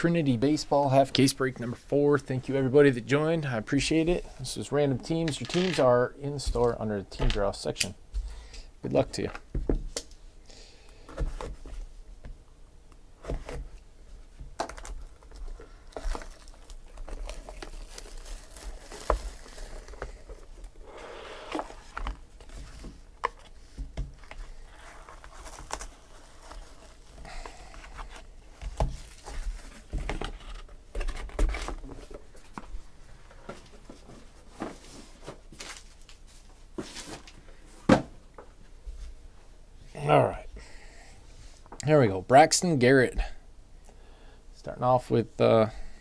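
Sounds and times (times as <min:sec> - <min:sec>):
plastic wrap crinkling: 0:14.6 - 0:20.6, 0:24.2 - 0:30.0.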